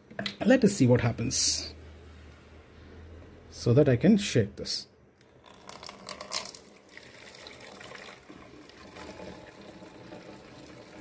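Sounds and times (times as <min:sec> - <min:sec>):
liquid trickling into bottle: 0:05.4 - 0:11.0.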